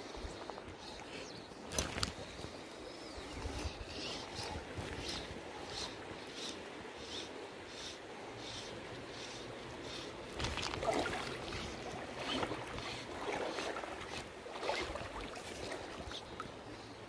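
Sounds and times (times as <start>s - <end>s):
water sloshing and splashing: 1.6s - 2.8s, 9.7s - 16.6s
river current rushing: 9.0s - 16.1s.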